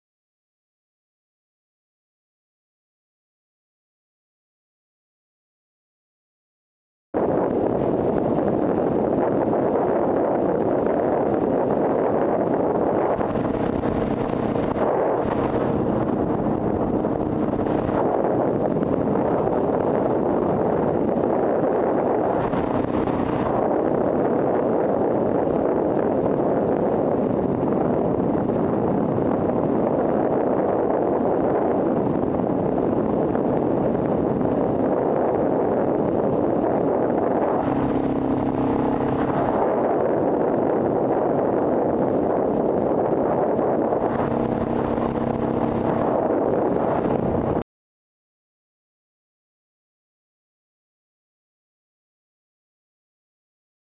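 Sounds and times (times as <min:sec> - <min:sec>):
wind rushing over microphone: 0:07.2 - 0:47.6.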